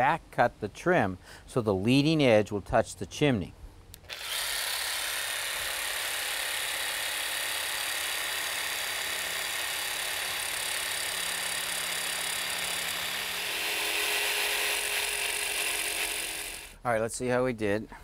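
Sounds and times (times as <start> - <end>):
jigsaw cutting plastic board: 4.1 - 16.8.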